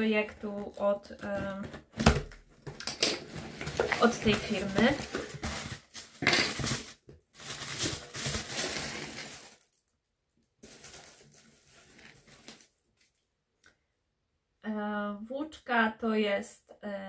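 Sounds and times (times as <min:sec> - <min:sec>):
packaging rustling and crinkling: 0:00.2 - 0:10.0, 0:10.6 - 0:13.2.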